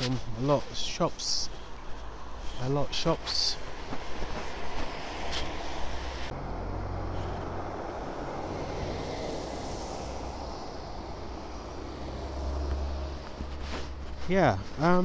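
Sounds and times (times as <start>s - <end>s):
tyres hissing on wet road: 0.0s - 15.0s
low engine rumble: 5.7s - 15.0s.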